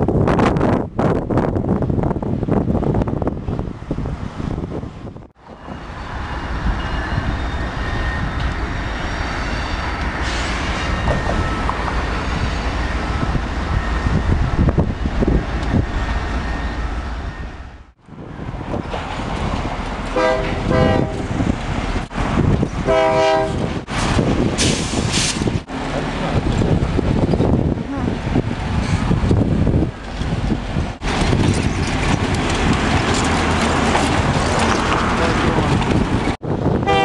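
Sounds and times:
wind on microphone: 0.0s - 5.8s, 9.9s - 16.6s, 17.2s - 37.0s
train rolling noise: 0.0s - 37.0s
locomotive engine rumble: 0.1s - 37.0s
locomotive horn: 20.1s - 21.4s, 22.8s - 23.7s, 36.8s - 37.0s.

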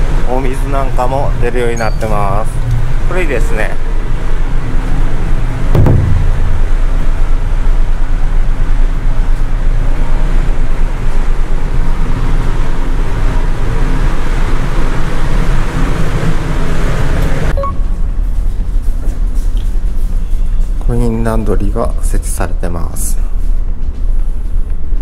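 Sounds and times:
low rumble: 4.0s - 16.5s.

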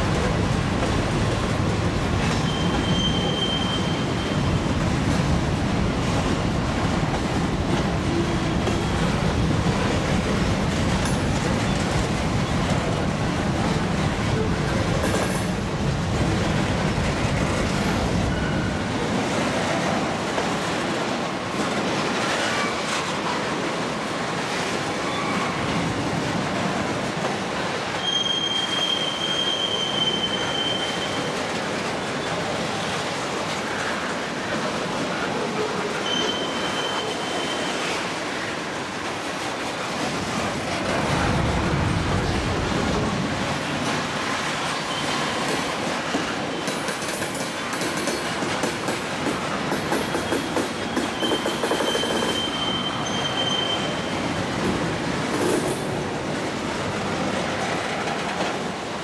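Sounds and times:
freight train rumbling past: 0.0s - 59.0s
high wheel squeal: 2.4s - 4.6s, 28.0s - 31.4s, 36.0s - 37.9s, 50.2s - 54.2s.

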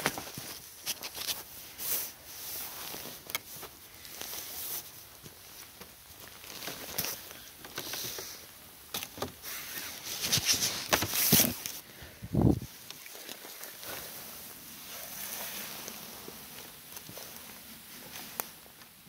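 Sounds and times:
footsteps in snow and leaves: 0.0s - 8.4s, 12.6s - 18.8s.

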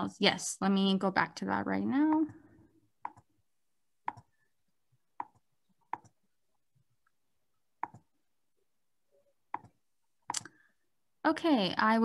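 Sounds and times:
computer mouse clicks: 3.0s - 3.3s, 4.1s - 4.3s, 5.2s - 6.2s, 7.8s - 8.1s, 9.5s - 10.5s.

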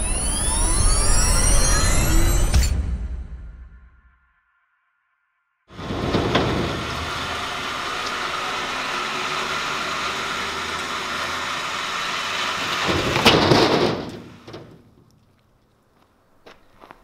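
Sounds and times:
steel section crashing onto trailer: 5.7s - 9.1s, 12.4s - 15.0s
heavy mechanical winch noise: 5.7s - 14.6s.

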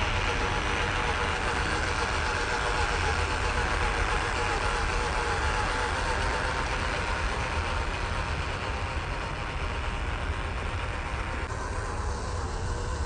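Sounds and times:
electric motor and gearbox whining: 0.0s - 13.0s.

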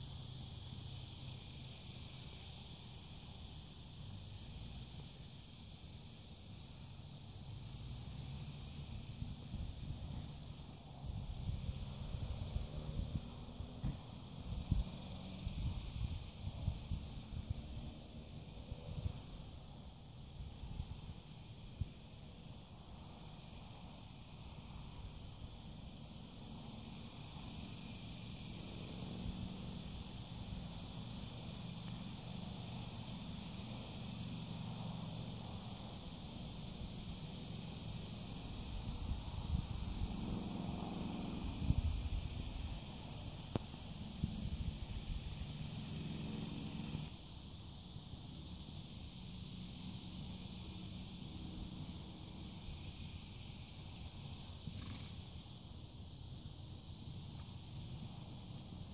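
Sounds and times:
high-pitched insect chorus: 0.0s - 58.9s.

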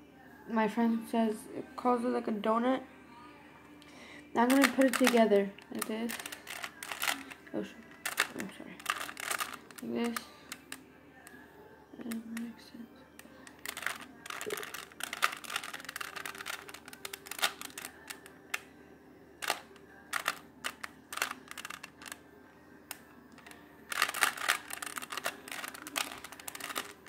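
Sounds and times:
puzzle cube layers clicking: 23.9s - 27.0s.

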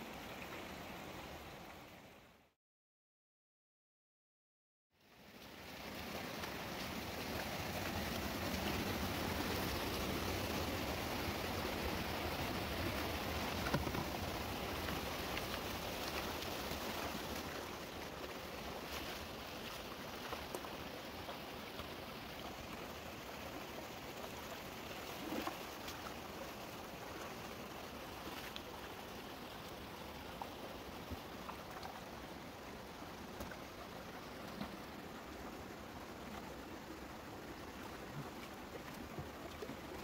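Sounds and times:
stream rushing over stones: 5.1s - 40.0s
feet wading through water: 12.6s - 22.9s.

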